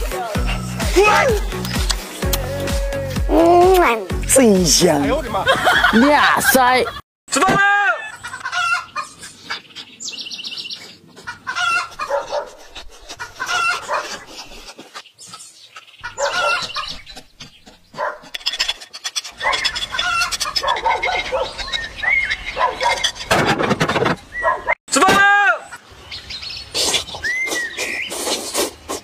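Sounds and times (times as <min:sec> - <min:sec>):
chicken clucking: 0:08.1 - 0:10.0, 0:11.1 - 0:18.2
high bird trill: 0:13.2 - 0:23.3.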